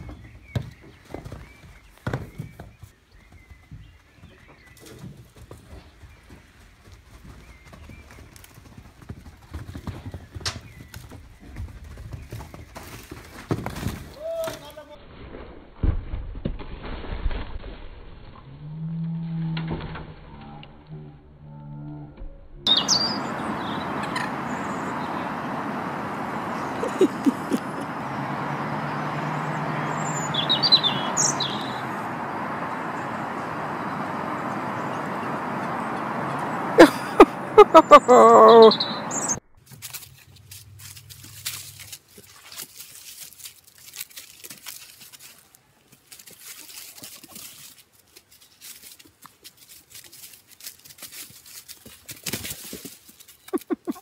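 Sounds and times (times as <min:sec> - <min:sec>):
horse hooves thudding on sand: 0:00.0 - 0:14.7, 0:22.7 - 0:38.0
outdoor background noise: 0:00.0 - 0:54.0
low hum: 0:18.1 - 0:39.6
small bird chirps: 0:22.7 - 0:25.4, 0:29.4 - 0:33.5, 0:37.8 - 0:39.4.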